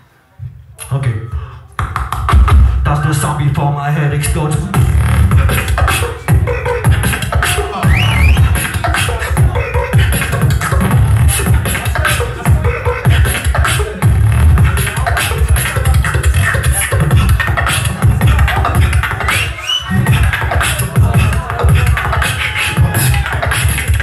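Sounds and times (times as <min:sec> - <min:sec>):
amplified beatboxing: 0:00.5 - 0:24.0
whistle-like rising sweeps: 0:07.8 - 0:08.5.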